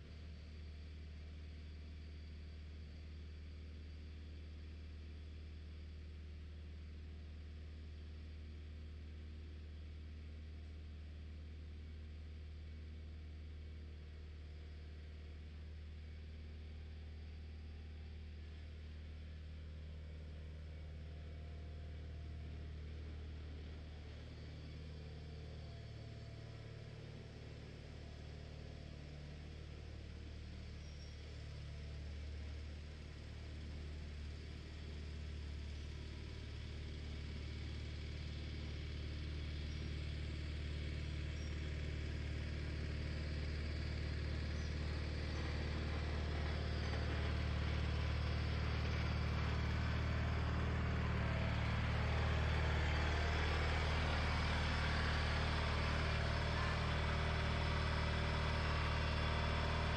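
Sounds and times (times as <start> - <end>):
garden tractor engine running: 20.2 - 59.9.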